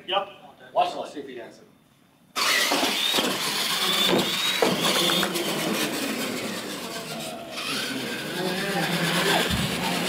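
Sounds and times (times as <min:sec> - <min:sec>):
toy truck motor whining: 0:02.4 - 0:10.0.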